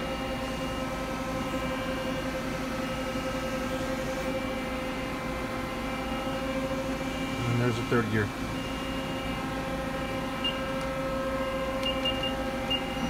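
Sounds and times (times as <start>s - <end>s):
lathe machine hum: 0.0s - 13.0s.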